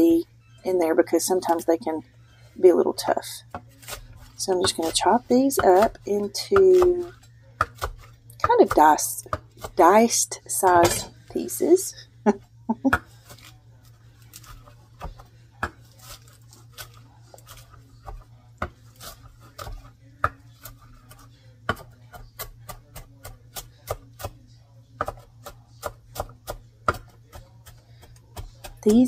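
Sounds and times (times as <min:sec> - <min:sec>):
knife chopping on wooden board: 0:03.5 - 0:10.0, 0:16.8 - 0:24.4, 0:25.0 - 0:29.0.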